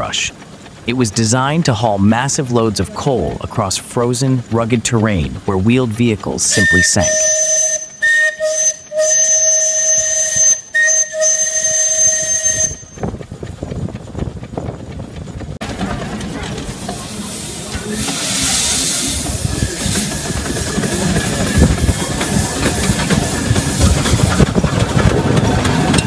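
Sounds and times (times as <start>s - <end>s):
steam whistle blasts: 6.5s - 12.9s
hiss of escaping steam: 16.6s - 24.4s.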